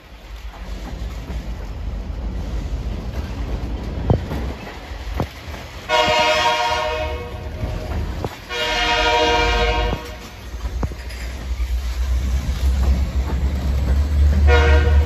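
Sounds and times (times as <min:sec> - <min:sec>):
rumble of rail cars rolling: 0:00.0 - 0:15.0
locomotive air horn blasts: 0:05.9 - 0:07.6, 0:08.5 - 0:10.4, 0:14.4 - 0:15.0.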